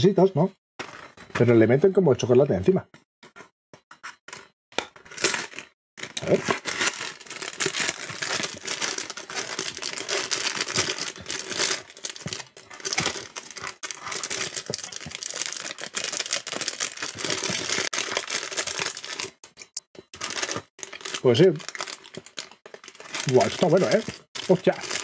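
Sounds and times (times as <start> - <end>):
plastic packaging crinkling: 5.1 - 25.0.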